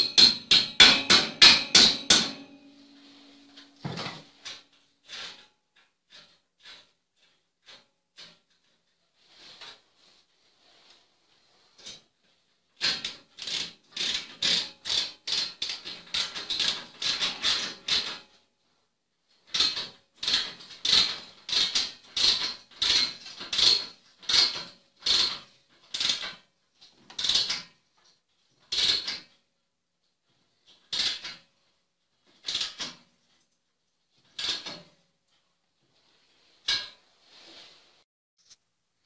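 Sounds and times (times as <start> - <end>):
tool scraping plaster wall: 0.0 - 18.5, 19.4 - 29.5, 30.2 - 38.6.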